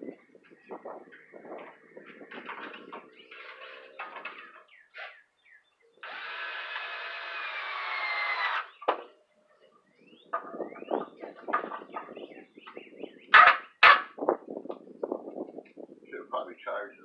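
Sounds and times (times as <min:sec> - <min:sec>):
power drill whirring: 0:06.0 - 0:08.8.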